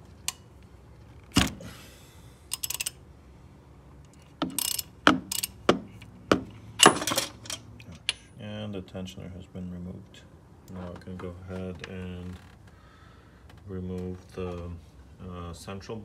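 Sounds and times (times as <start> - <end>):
socket ratchet clicking: 2.5 - 3.0, 4.1 - 6.1.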